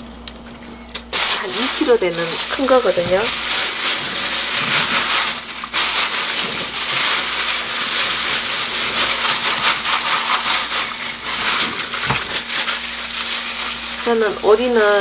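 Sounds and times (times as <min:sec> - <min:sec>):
plastic bag crinkling: 0:01.0 - 0:15.0.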